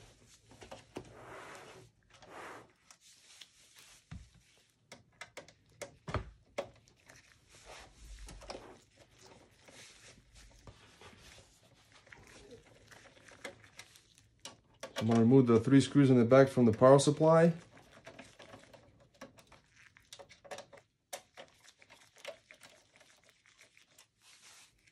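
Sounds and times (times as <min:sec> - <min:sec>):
handling clicks and knocks: 0:14.4 - 0:15.6.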